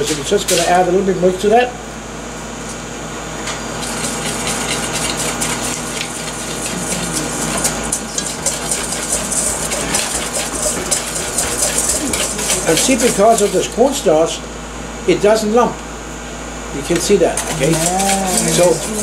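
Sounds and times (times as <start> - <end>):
whisk beating in metal bowl: 3.8 - 14.2, 17.4 - 19.0.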